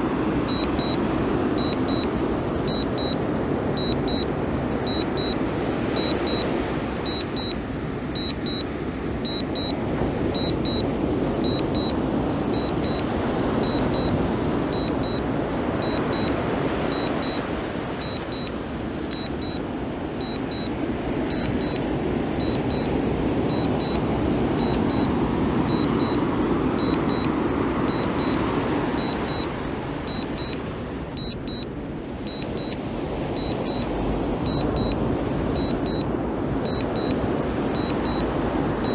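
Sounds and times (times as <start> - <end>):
remote controller short high beeps: 0.5 - 1.0, 1.6 - 2.1, 2.7 - 3.2, 3.8 - 5.4, 6.0 - 7.6, 8.2 - 9.8, 10.4 - 15.2, 15.8 - 19.6, 20.2 - 20.7, 21.3 - 21.8, 22.4 - 22.9, 23.5 - 24.0, 24.6 - 25.1, 25.7 - 26.2, 26.8 - 29.5, 30.1 - 30.6, 31.2 - 31.7, 32.3 - 32.8, 33.4 - 38.9.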